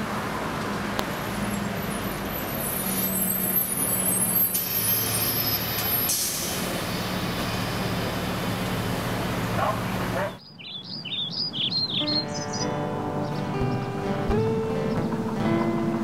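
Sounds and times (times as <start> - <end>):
heavy vehicle engine running: 0.0 - 10.4
air brakes hissing: 2.8 - 6.7.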